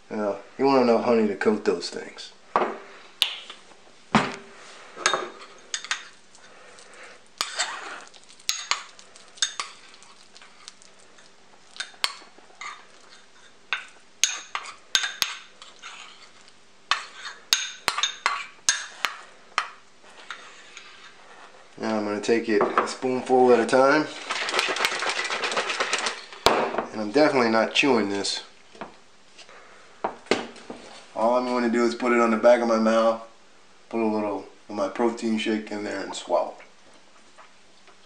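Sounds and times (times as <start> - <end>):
metal spoon scraping ceramic bowl: 14.2 - 16.3.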